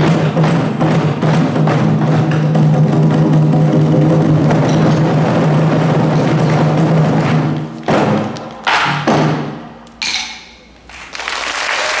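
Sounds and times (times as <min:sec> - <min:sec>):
loud unison drum strokes: 0:00.0 - 0:10.7
barrel drum ensemble playing: 0:00.0 - 0:10.8.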